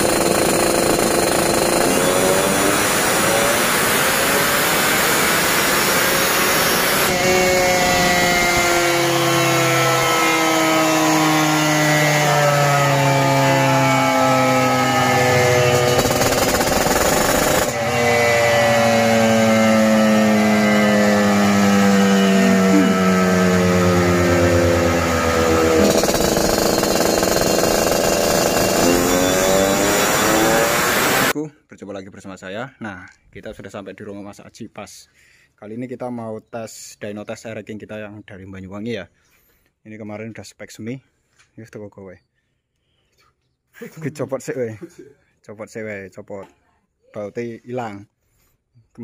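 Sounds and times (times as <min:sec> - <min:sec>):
motorcycle engine revving: 0:00.0 - 0:31.4.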